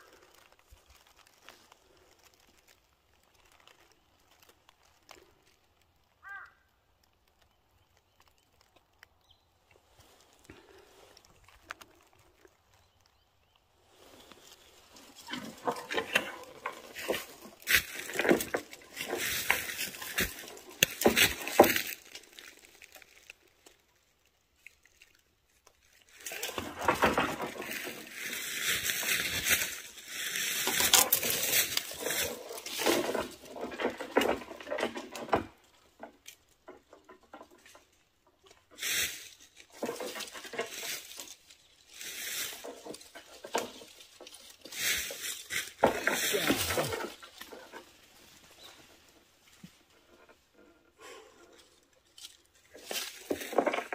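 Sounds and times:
telescopic pole clattering: 14.2s - 23.3s, 26.1s - 53.9s.

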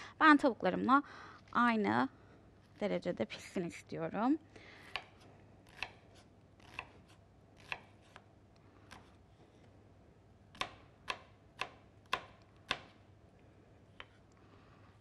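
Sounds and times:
knife chopping an onion: 4.9s - 8.3s, 10.5s - 13.0s.

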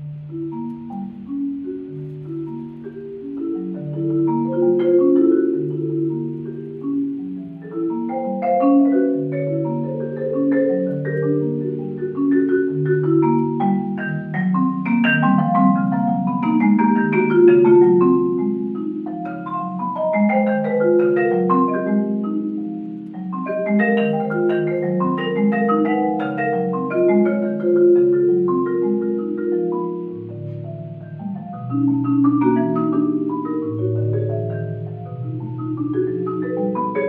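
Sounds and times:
marimba playing: 0.0s - 37.0s.

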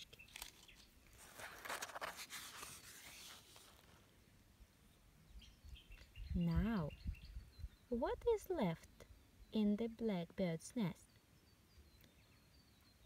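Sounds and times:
paper page turning: 0.0s - 4.1s.

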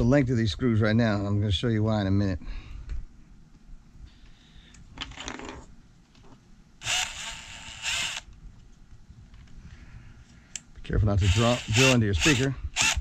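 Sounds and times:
cordless drill driving screws: 6.8s - 8.3s, 11.2s - 13.0s.

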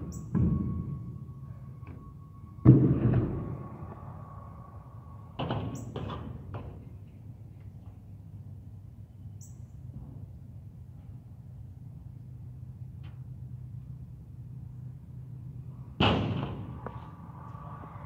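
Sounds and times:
skateboard landing slam: 16.0s - 16.7s.

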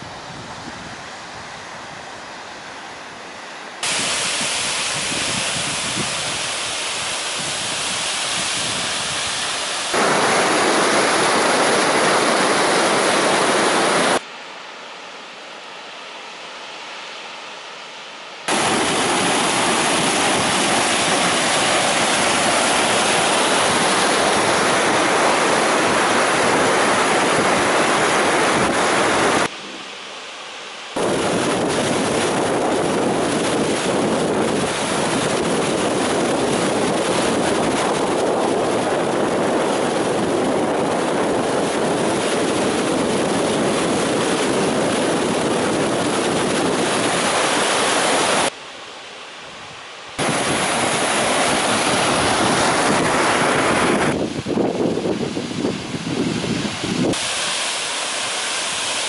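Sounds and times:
waterfall rushing over rock: 3.8s - 14.3s, 18.5s - 29.5s, 31.0s - 48.6s, 50.2s - 59.0s.

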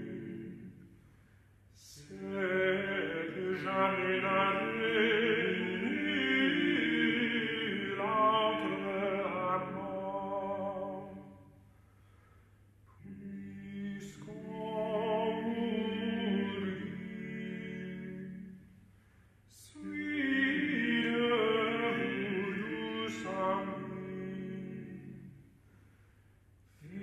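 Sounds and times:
men singing in harmony: 0.0s - 0.6s.

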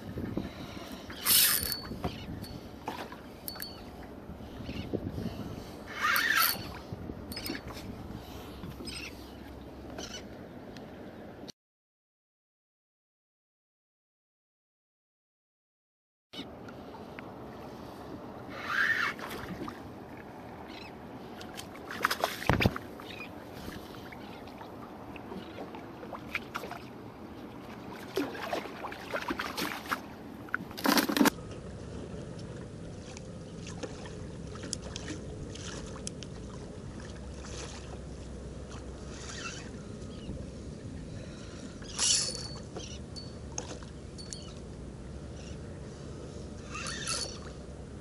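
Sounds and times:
water lapping around a kayak: 0.0s - 10.4s, 16.4s - 48.0s
water splashes: 21.2s - 39.9s.

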